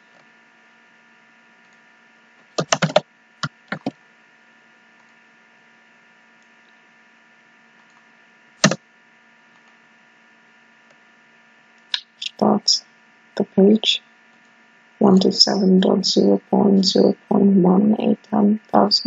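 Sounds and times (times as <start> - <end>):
steady electrical hum: 0.0 - 19.0
computer keyboard keystrokes: 2.6 - 3.9.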